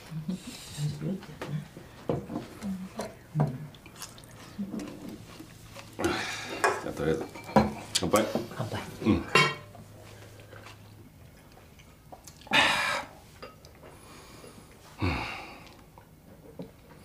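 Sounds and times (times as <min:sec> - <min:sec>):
breathy sighs: 0:14.0 - 0:15.8.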